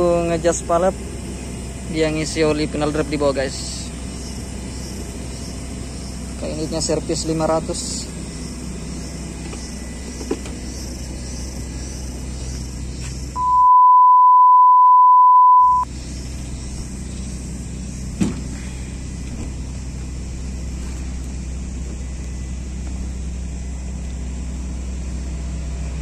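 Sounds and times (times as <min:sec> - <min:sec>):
low engine rumble: 0:00.0 - 0:13.6, 0:15.6 - 0:26.0
censor bleep: 0:13.4 - 0:15.9.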